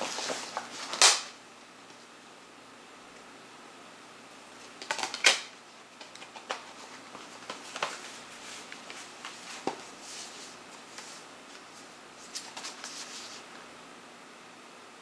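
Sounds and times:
soft cardboard rustling: 0.0 - 1.0, 6.0 - 13.6.

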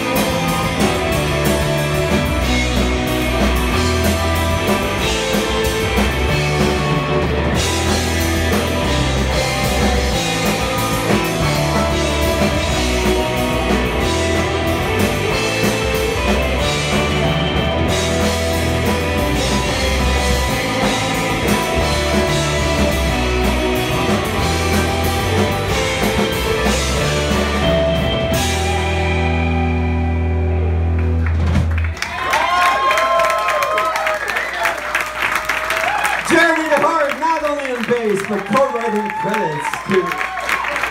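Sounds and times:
surf rock band playing: 0.0 - 34.2, 35.2 - 40.9
audience cheering: 31.0 - 40.9.

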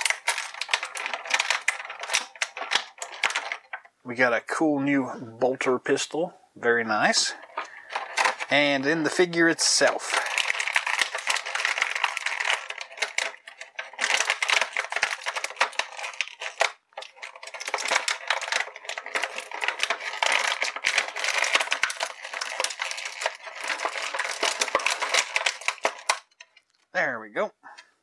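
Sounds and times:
plastic blister tray crackling: 0.0 - 4.0, 6.8 - 26.9.

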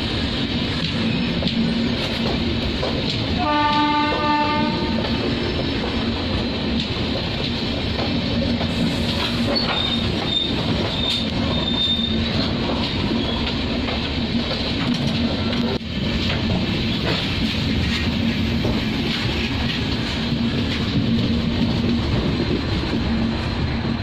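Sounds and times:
train wheels roaring on rail: 0.0 - 24.0
high wheel squeal: 9.4 - 12.3.

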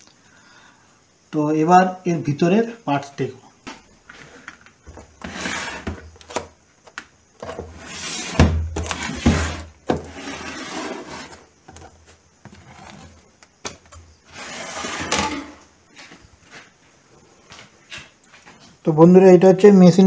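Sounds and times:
wooden lid rubbing and scraping: 4.9 - 6.1, 7.4 - 13.3, 14.2 - 15.6.

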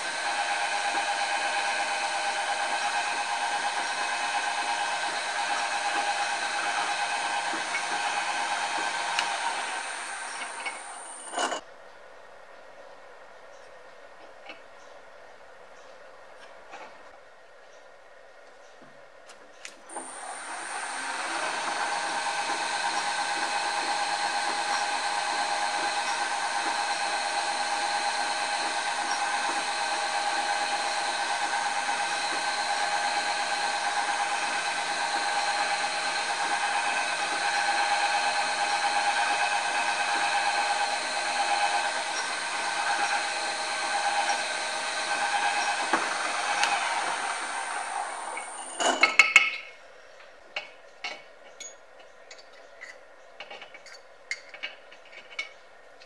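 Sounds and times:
drill boring into metal: 0.0 - 11.6, 19.8 - 49.0
drill press motor running: 0.0 - 11.6, 19.8 - 49.0.

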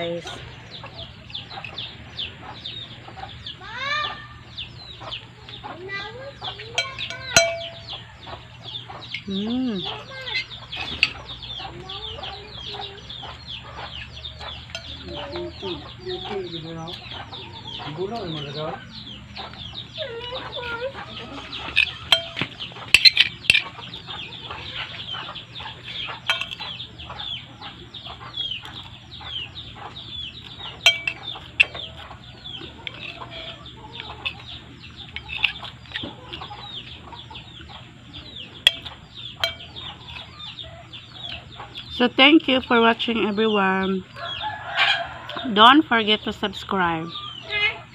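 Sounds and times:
chickens clucking: 0.0 - 47.9
metal spoon clinking on plate: 6.8 - 8.0, 14.4 - 15.1, 21.5 - 23.8, 26.3 - 26.8, 30.8 - 32.0, 38.7 - 40.3.

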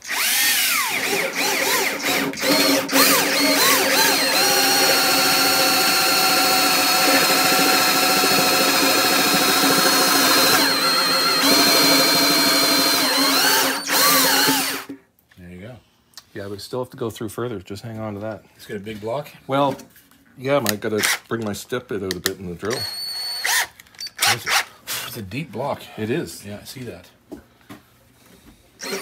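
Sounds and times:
cordless drill running: 0.0 - 15.0, 22.7 - 24.6, 28.8 - 29.0.

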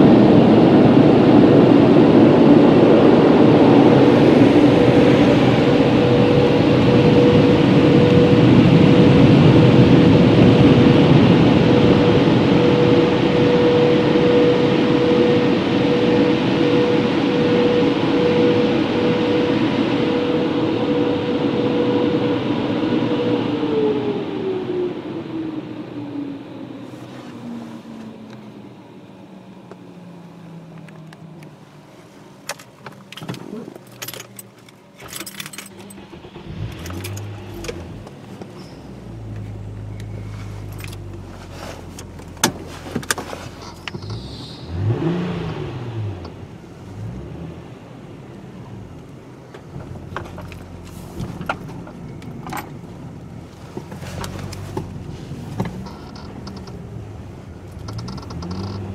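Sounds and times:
car engine running: 0.0 - 23.7, 26.8 - 58.9
low steady drone: 0.0 - 32.0
low hum: 0.0 - 32.1.

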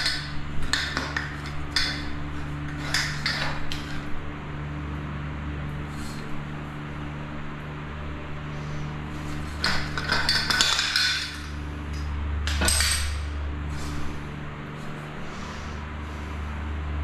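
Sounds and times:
metal parts clinking and clattering: 0.0 - 4.0, 9.6 - 11.6, 12.4 - 13.3
low hum: 0.0 - 17.0.

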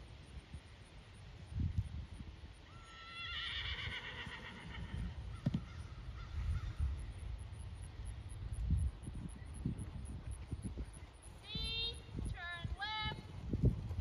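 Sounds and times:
horse whinnying: 2.8 - 5.2.

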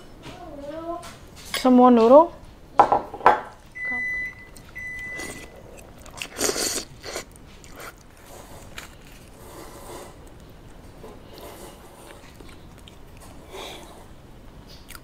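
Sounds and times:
biting and chewing: 4.5 - 15.0
crusty bread roll tearing: 6.9 - 9.4
scrapes against a bowl: 8.2 - 10.2.

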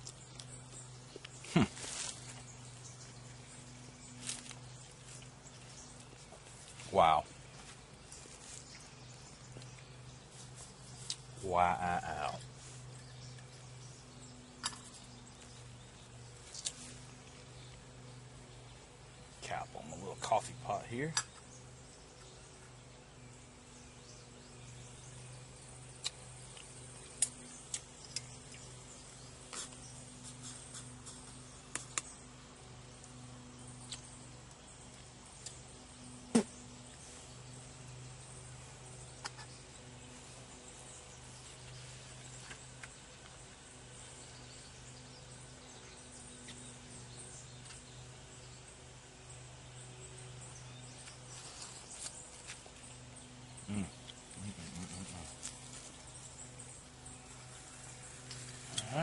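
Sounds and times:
faint low hum: 0.0 - 59.0
small ticks: 26.0 - 28.8.

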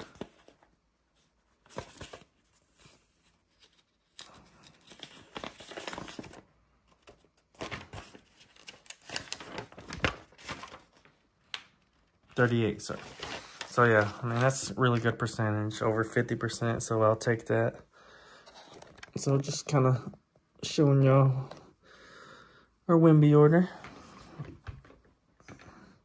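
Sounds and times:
paper sheets rustling: 0.0 - 15.5.

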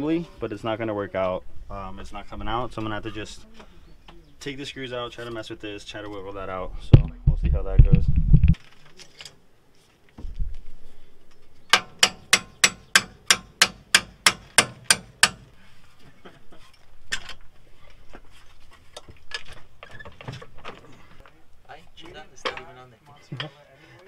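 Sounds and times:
hand tool striking metal: 11.7 - 15.5.

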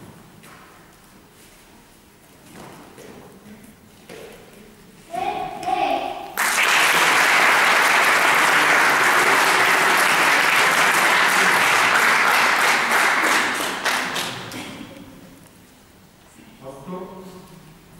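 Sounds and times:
children applauding: 6.4 - 14.4.

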